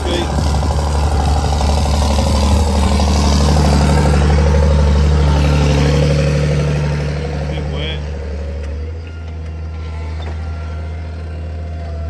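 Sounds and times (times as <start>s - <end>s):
tractor engine roaring under load: 0.0s - 12.0s.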